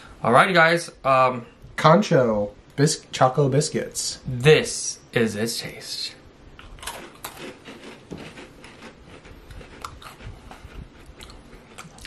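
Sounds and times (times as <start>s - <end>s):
chewing crunchy biscuits: 6.6s - 12.0s.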